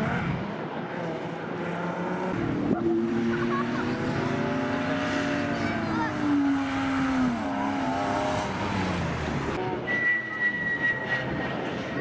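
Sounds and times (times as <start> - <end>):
car engine revving: 0.0 - 9.8
steady high whistling tone: 9.9 - 11.6.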